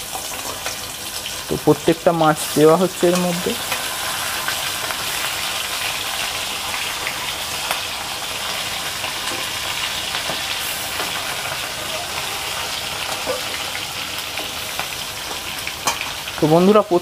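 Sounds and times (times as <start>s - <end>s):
fish sizzling in oil: 0.0s - 17.0s.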